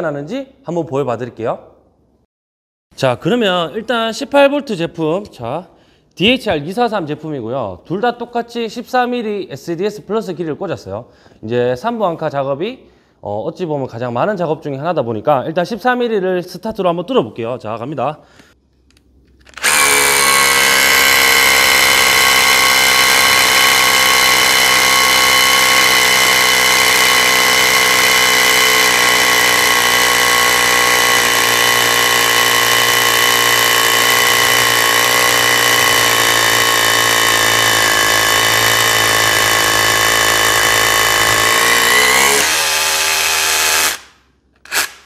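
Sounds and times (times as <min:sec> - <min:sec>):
rotary hammer drilling into concrete: 0:19.5 - 0:45.0.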